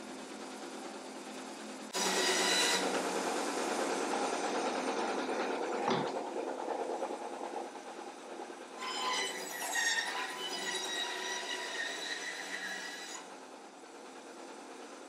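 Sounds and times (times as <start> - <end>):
band saw cutting wood: 1.9 - 6.2, 8.7 - 13.4
saw blade squealing: 8.8 - 13.3.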